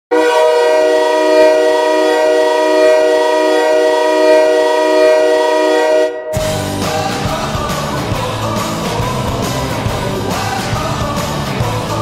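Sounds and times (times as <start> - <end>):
hockey goal horn blasting: 0.1 - 6.8.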